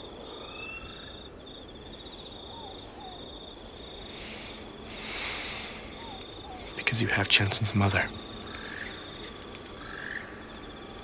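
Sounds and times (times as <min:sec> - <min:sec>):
cricket trilling: 0:00.0 - 0:11.0
soft rush of noise: 0:01.3 - 0:11.0
whistling bird calls: 0:05.8 - 0:06.8.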